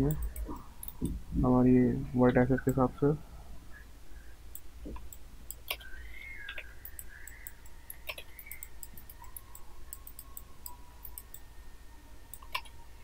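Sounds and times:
low steady hum: 0.0 - 13.0
computer mouse buttons clicking: 0.1 - 1.2, 4.5 - 11.5, 12.3 - 12.8.

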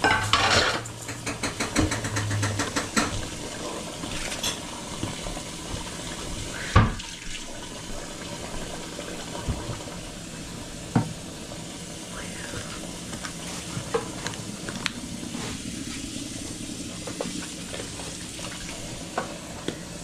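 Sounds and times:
dishes and utensils clattering: 0.0 - 4.7
steady hiss: 2.5 - 20.0.

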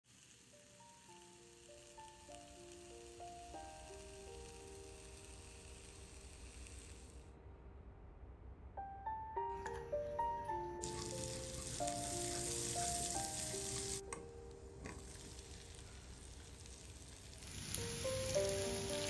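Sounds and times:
butter sizzling in a pan: 0.0 - 7.3, 10.8 - 19.0
gentle melodic background music: 0.5 - 6.6, 8.8 - 16.8, 17.5 - 19.0
garlic being stirred: 10.8 - 14.2.

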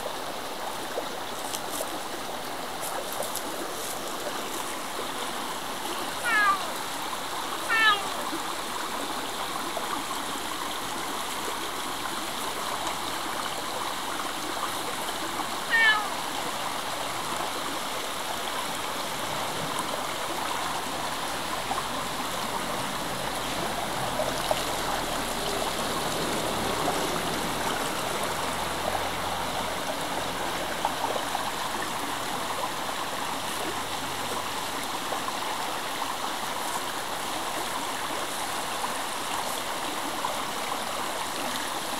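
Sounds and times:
stream rushing over rocks: 0.0 - 41.9
cat meowing: 6.2 - 6.7, 7.6 - 8.2, 15.7 - 16.2.

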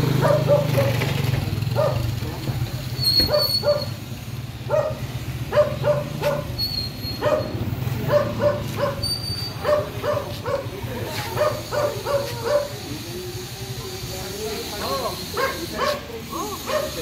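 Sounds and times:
dog barking: 0.1 - 1.0, 1.7 - 2.2, 3.2 - 4.0, 4.6 - 6.6, 7.2 - 12.9, 14.9 - 17.0.

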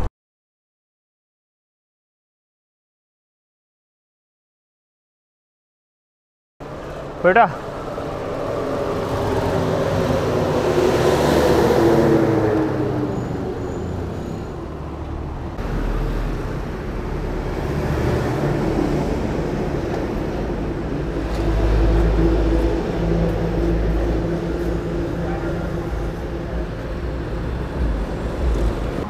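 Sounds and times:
heavy low vehicle rumble: 6.6 - 29.0
vehicle engines passing: 6.6 - 29.0.

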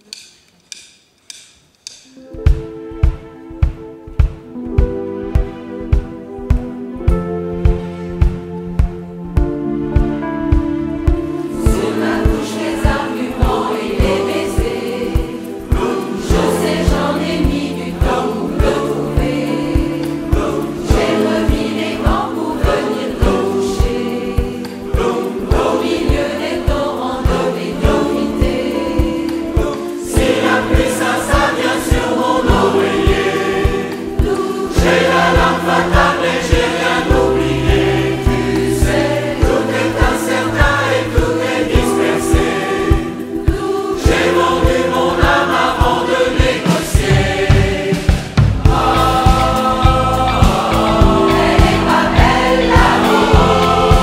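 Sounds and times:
choir singing pop song: 10.2 - 54.0
live band with drum beat: 46.3 - 54.0.

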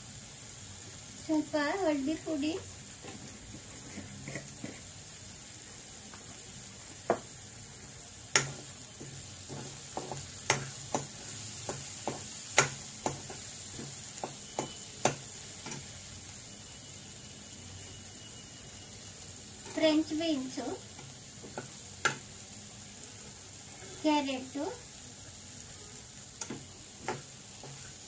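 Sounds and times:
faint frying sizzle: 0.0 - 28.0
metal spoon scraping pan: 3.0 - 4.9.

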